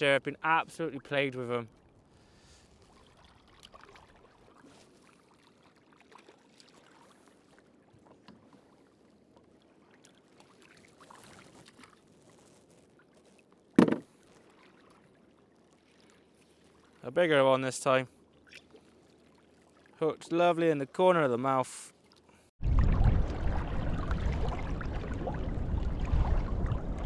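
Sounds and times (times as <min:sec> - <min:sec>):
faint water trickling: 0:00.0 - 0:27.0
handling noises on kayak: 0:07.9 - 0:09.5, 0:11.2 - 0:15.0
sharp knock: 0:13.8 - 0:14.0.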